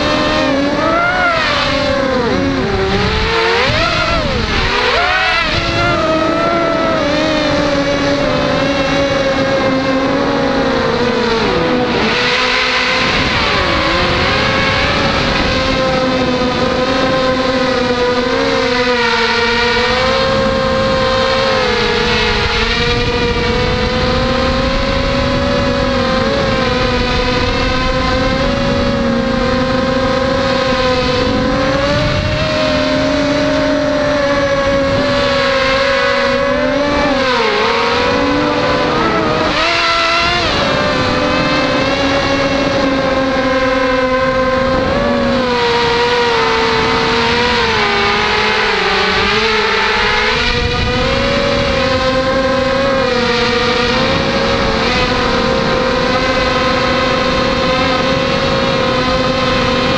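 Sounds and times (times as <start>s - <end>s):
drone motors whining: 0.0s - 59.9s.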